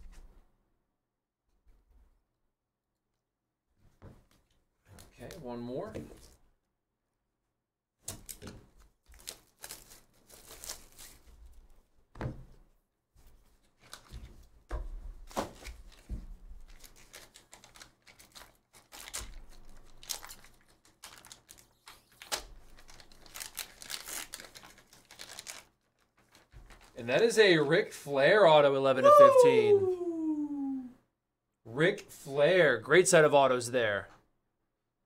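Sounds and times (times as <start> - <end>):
foil pack crinkling: 9.0 - 11.4, 15.4 - 27.3
plastic wrap ripping: 9.0 - 11.4, 16.6 - 27.0.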